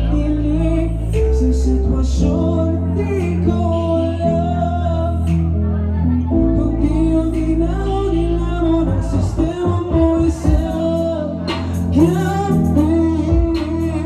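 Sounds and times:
loud amplified music: 0:00.0 - 0:14.0
man singing into a microphone: 0:00.0 - 0:14.0.

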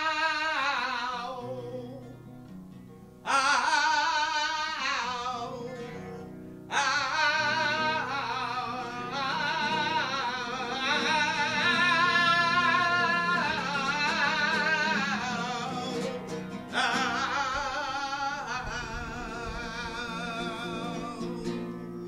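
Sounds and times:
flamenco guitar: 0:00.0 - 0:22.0
flamenco singing: 0:00.0 - 0:22.0.

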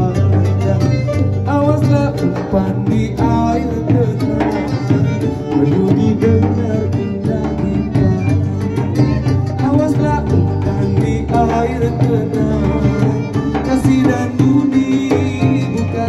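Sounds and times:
accompanying instruments: 0:00.0 - 0:16.0
frame drum: 0:00.0 - 0:16.0
man singing: 0:00.0 - 0:16.0.

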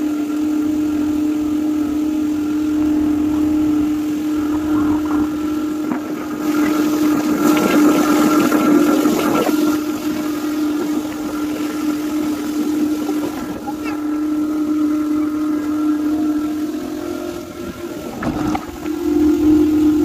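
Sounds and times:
motorboat engine droning: 0:00.0 - 0:20.0
water splashing against hull: 0:00.0 - 0:20.0.

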